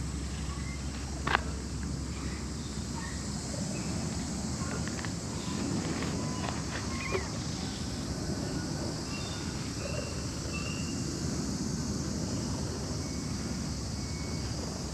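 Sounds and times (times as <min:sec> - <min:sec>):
high insect chorus: 0:00.0 - 0:14.9.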